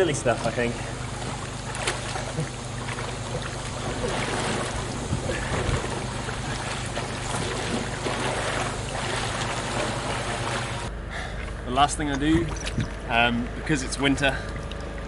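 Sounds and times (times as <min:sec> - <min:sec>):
water splashing around kayak: 0:00.0 - 0:10.9
wind rumbling on microphone: 0:02.8 - 0:10.9, 0:12.2 - 0:13.1.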